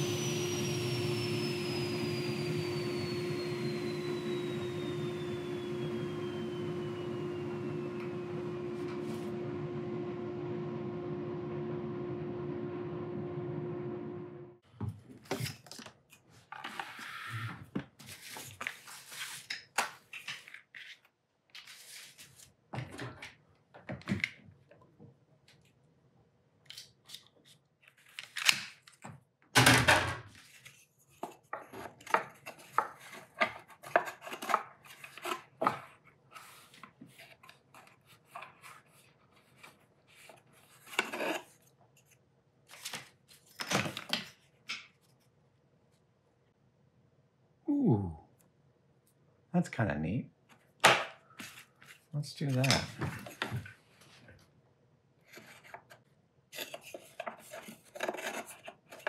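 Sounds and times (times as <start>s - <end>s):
machine hum: 0.0s - 14.6s.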